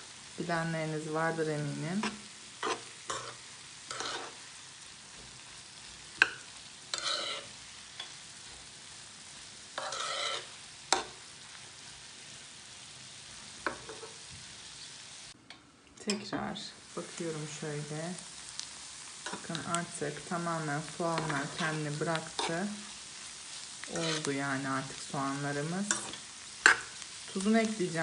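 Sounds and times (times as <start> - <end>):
onions sizzling in a pan: 0.0 - 28.0
metal spoon scraping a pan: 2.0 - 4.4, 6.2 - 8.2, 9.8 - 11.2, 13.7 - 14.2, 19.2 - 19.6, 21.1 - 24.4, 25.4 - 27.5.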